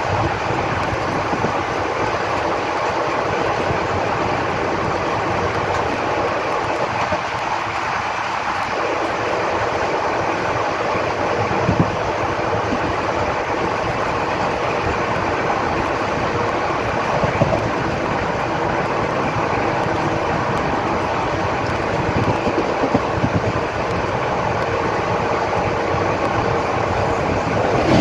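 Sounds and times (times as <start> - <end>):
train wheels on rails: 0.0 - 28.0.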